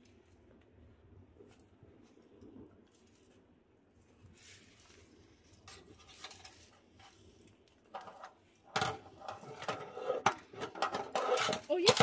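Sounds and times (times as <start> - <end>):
metal utensils clinking: 8.8 - 12.0.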